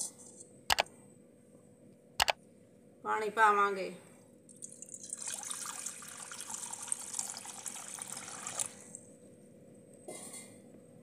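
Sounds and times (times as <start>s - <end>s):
water pouring into metal pan: 4.7s - 9.0s.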